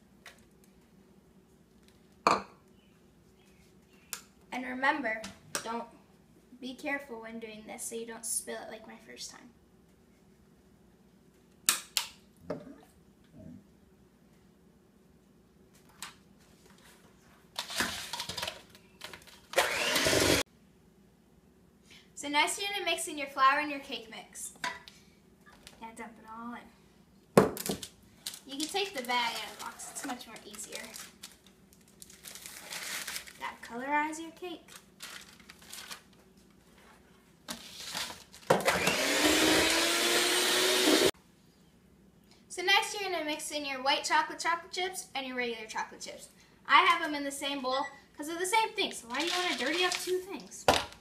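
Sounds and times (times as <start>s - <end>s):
electric hand mixer beating: 19.6s - 20.4s, 38.6s - 41.1s.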